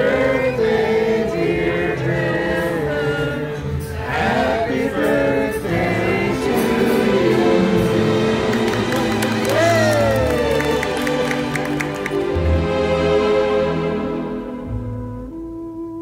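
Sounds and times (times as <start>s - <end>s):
group of people singing: 0.0s - 8.9s.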